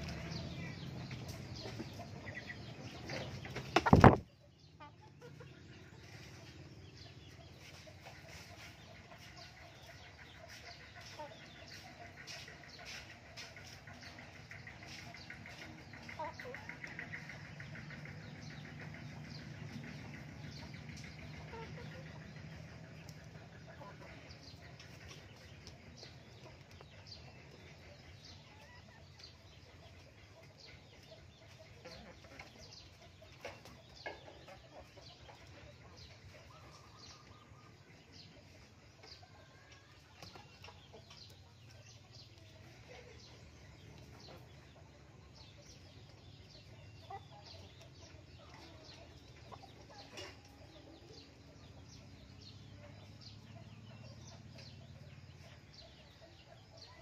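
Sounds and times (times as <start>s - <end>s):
faint chicken clucking: 0.0s - 57.0s.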